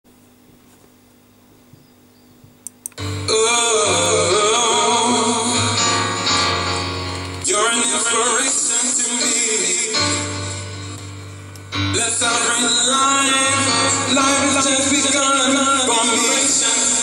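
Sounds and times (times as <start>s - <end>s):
short clicks: 2.6s - 3.1s
song with singing: 3.0s - 10.8s, 11.7s - 17.0s.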